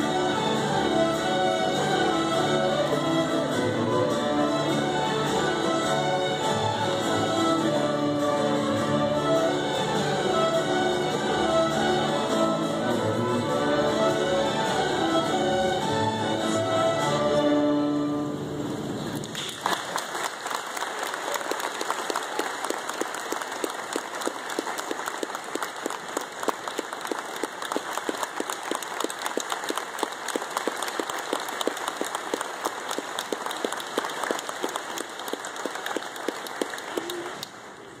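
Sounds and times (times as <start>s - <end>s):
audience applauding: 19.0s - 38.0s.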